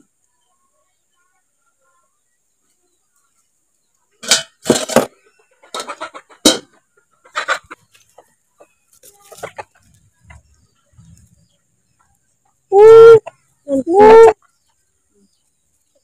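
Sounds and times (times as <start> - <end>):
steel cookware clanking: 4.2 - 5.1.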